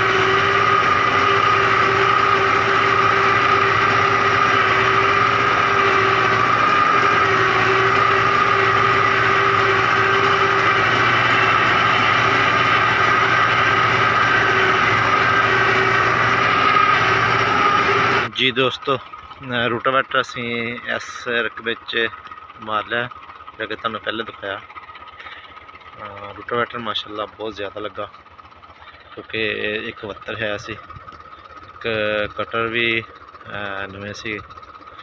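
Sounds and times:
steady high whine: 0.0s - 19.8s
tractor diesel engine running: 0.0s - 35.0s.

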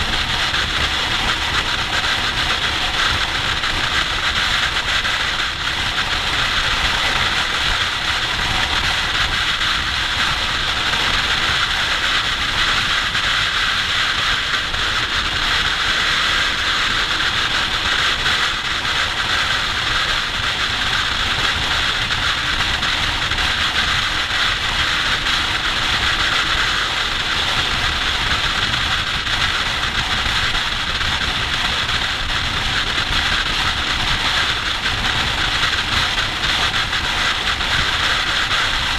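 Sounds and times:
motorcycle engine running: 0.0s - 38.9s
wind rush: 0.0s - 38.9s.

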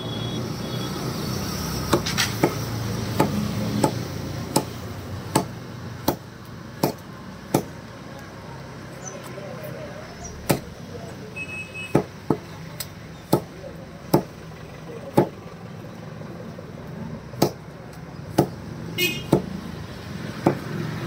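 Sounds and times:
cleaver chopping chicken on wood: 1.8s - 7.8s, 10.4s - 10.7s, 11.9s - 14.4s, 15.1s - 15.4s, 17.4s - 19.6s, 20.2s - 21.0s.

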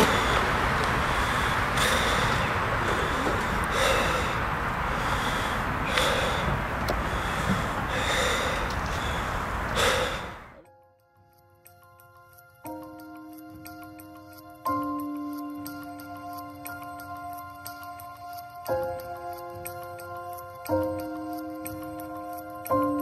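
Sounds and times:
loud rushing noise: 0.0s - 10.6s
person gasping heavily: 0.0s - 10.6s.

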